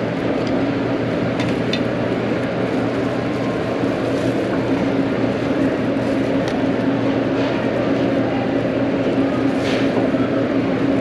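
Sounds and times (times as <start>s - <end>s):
ventilation fans droning: 0.0s - 11.0s.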